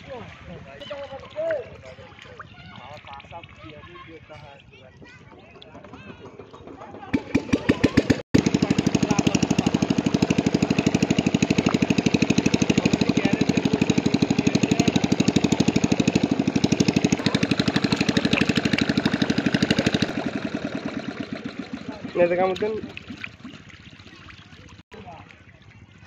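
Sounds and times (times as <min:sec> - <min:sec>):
small engine running: 0:05.8 - 0:24.8.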